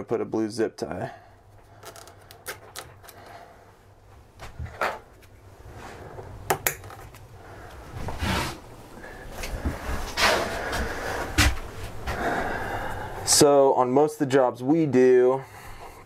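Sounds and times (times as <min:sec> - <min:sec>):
zip tie clicks and rustles: 0:01.7 - 0:03.3.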